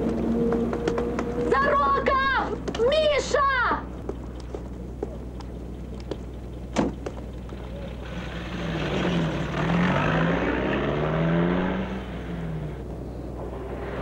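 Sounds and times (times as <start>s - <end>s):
car engine accelerating: 0.0s - 1.6s, 5.9s - 14.0s.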